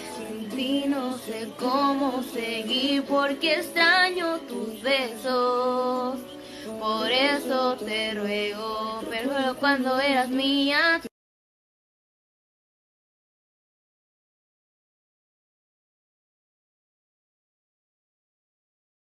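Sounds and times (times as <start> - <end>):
woman singing with vibrato: 0.0 - 11.1.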